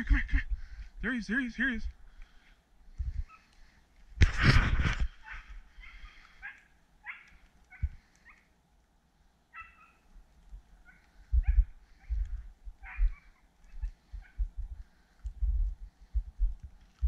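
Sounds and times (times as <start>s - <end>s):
dog yelping: 5.2s - 8.4s, 9.5s - 10.0s, 10.9s - 12.1s, 12.8s - 14.4s.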